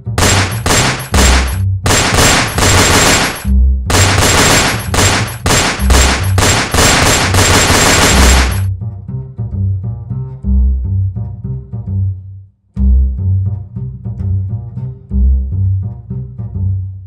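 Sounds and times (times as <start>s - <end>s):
bursts of rapid gunfire: 0.0s - 8.7s
low bowed string music: 8.7s - 17.0s.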